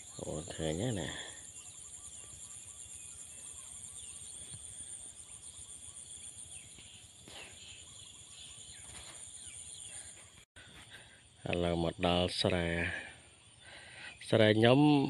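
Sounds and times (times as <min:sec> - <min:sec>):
short bird calls: 0:00.0 - 0:11.2.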